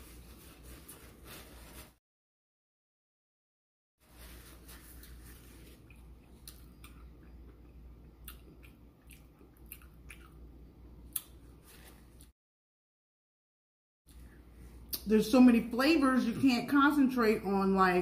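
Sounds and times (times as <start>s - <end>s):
low steady hum: 4.1s - 12.3s
person chewing: 4.9s - 12.3s.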